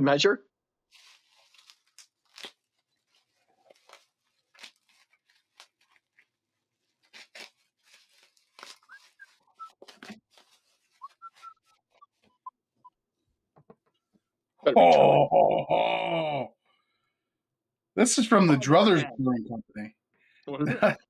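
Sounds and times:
plastic wrap crinkling and tearing: 0.9s - 11.4s.

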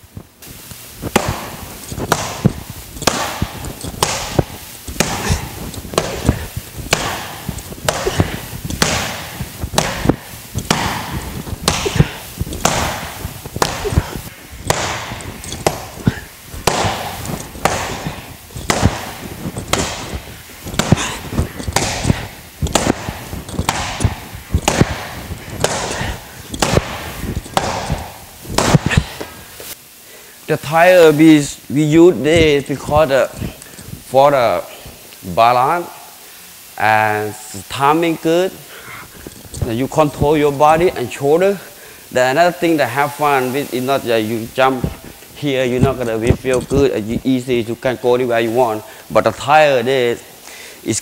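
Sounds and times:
steel bar striking heavy bag: 1.1s - 29.2s.

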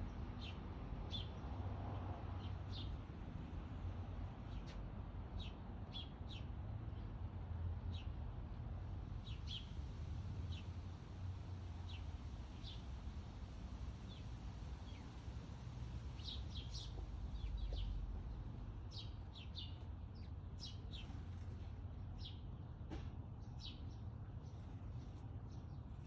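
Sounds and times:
songbird chirping: 14.0s - 26.0s.

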